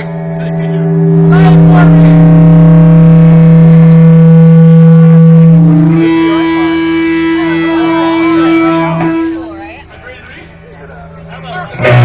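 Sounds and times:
surf rock band droning note: 0.0s - 12.0s.

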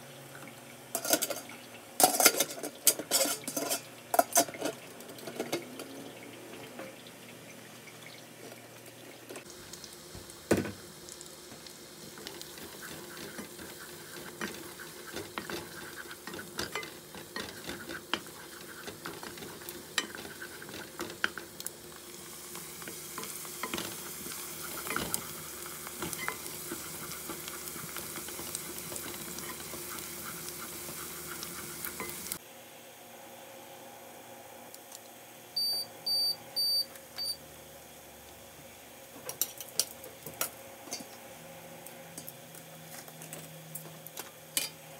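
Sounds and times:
utensil scraping a pan: 2.0s - 4.8s, 12.4s - 21.4s
food sizzling in a pan: 9.4s - 32.4s.

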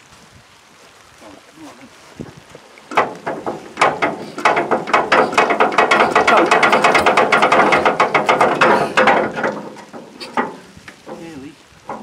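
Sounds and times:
diesel engine hand-cranked: 2.9s - 12.0s.

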